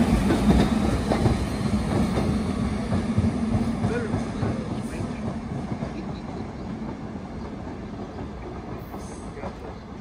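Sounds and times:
subway train running along track: 0:00.0 - 0:10.0.

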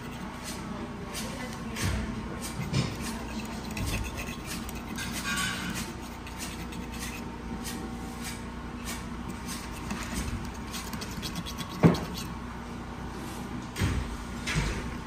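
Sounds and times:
knife and fork scraping bread crust: 0:00.0 - 0:01.3, 0:02.4 - 0:12.4.

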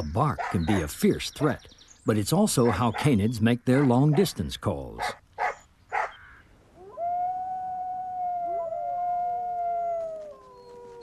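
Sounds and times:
small dog barking: 0:05.0 - 0:06.2
wolves howling: 0:06.8 - 0:11.0.

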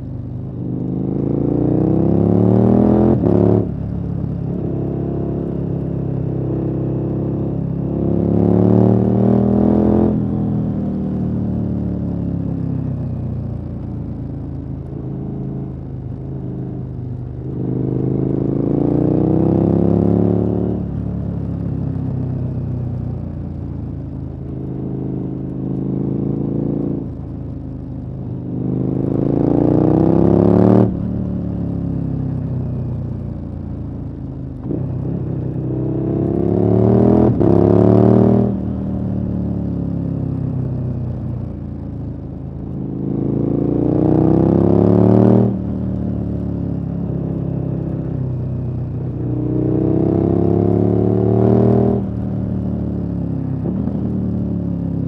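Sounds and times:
motorcycle engine revving: 0:49.1 - 0:52.2.

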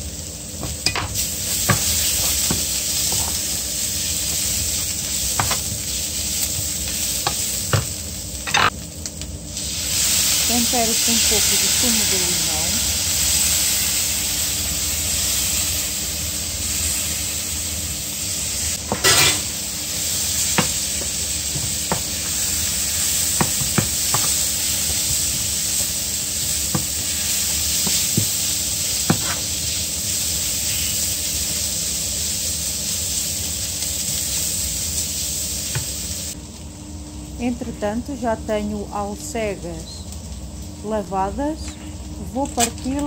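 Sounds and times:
vegetables sizzling in a pan: 0:00.0 - 0:43.0
wooden spoon knocking on pan: 0:00.6 - 0:03.4, 0:05.4 - 0:05.7, 0:20.6 - 0:22.4, 0:23.4 - 0:25.9, 0:26.7 - 0:27.0, 0:29.1 - 0:29.4.

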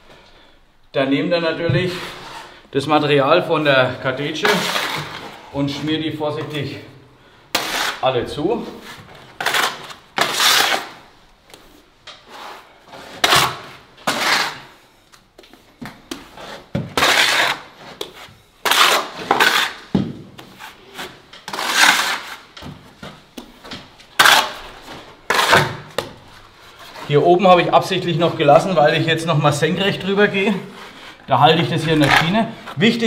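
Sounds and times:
plastering float scraping plaster: 0:01.8 - 0:02.6, 0:04.4 - 0:05.9, 0:07.5 - 0:11.0, 0:12.2 - 0:14.8, 0:16.0 - 0:23.2, 0:24.2 - 0:28.9, 0:29.6 - 0:33.0.

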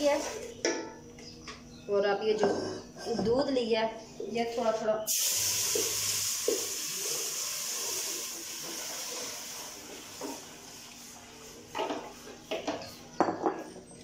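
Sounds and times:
milk sizzling in hot pot: 0:05.1 - 0:11.3.

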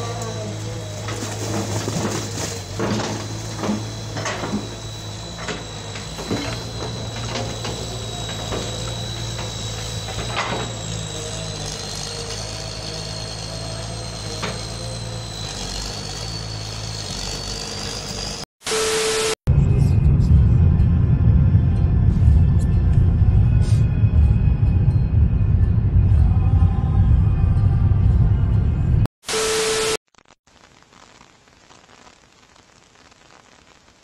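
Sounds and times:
excavator diesel engine running: 0:00.0 - 0:18.4
thin high whine: 0:00.0 - 0:19.4, 0:29.2 - 0:34.0.

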